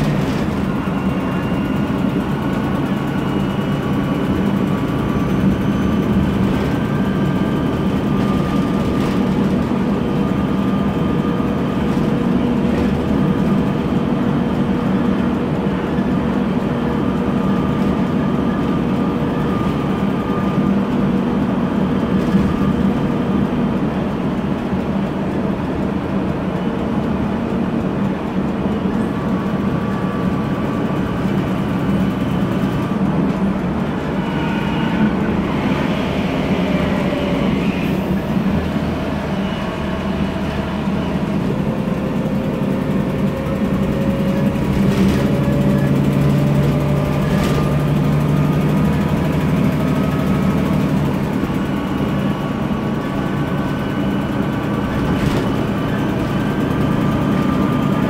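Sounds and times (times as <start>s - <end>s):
bus engine running: 0.0s - 58.0s
gearbox whine: 29.0s - 58.0s.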